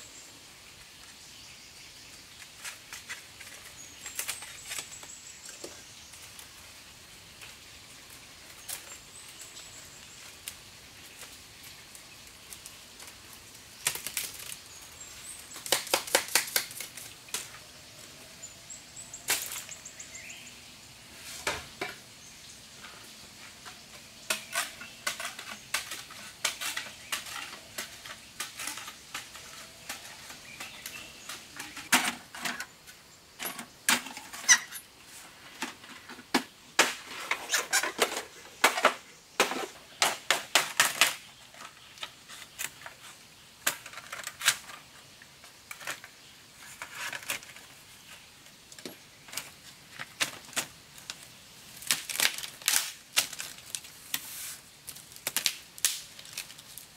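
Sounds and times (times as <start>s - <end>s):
knife splitting bamboo cracks: 13.8s - 14.6s, 15.6s - 17.5s, 51.8s - 54.2s, 54.9s - 56.8s.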